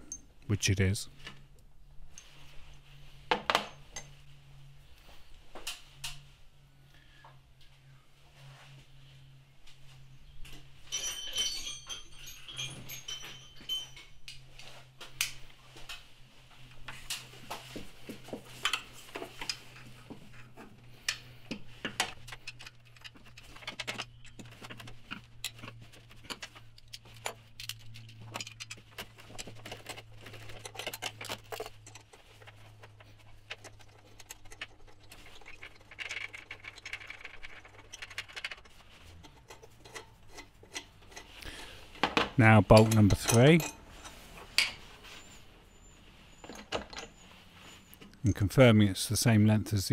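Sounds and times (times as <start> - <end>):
metallic jingle: 10.8 - 14.3
tools clicking and tapping: 21.0 - 44.8.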